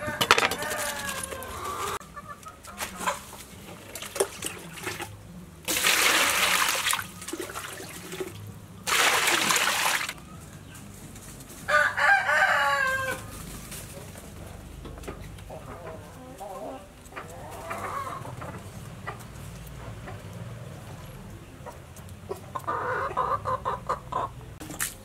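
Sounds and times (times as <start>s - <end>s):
rooster crowing: 0.0s - 2.0s, 11.7s - 13.3s
water splashing: 3.7s - 10.2s.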